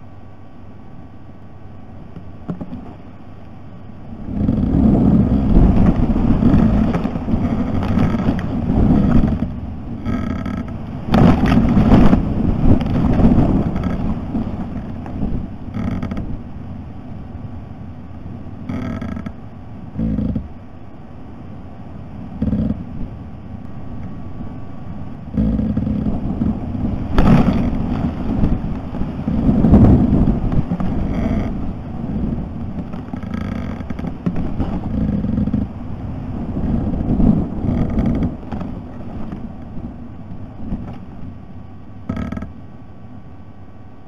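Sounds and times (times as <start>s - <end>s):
wind rumbling on microphone: 0.0s - 44.0s
short scrapes and knocks: 5.6s - 15.1s.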